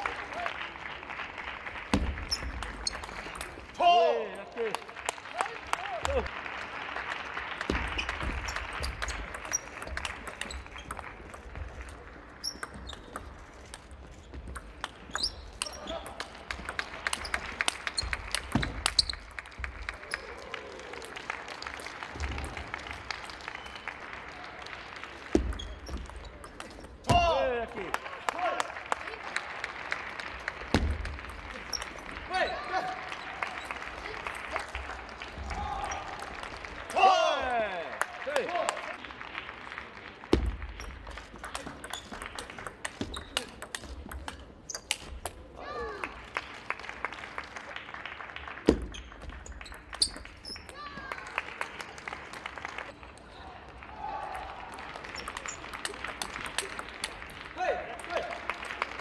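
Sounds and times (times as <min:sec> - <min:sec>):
light scattered clapping: 0:04.5 - 0:12.3, 0:15.6 - 0:26.8, 0:46.0 - 0:59.0
table tennis ball clicking: 0:41.6 - 0:45.4.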